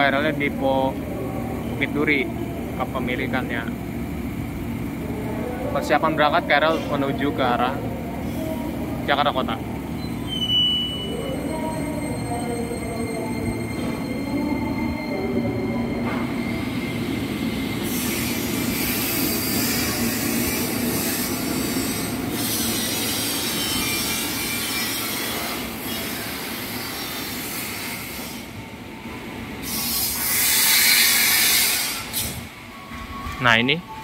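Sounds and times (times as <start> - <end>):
train wheels on rails: 15.7 - 33.5.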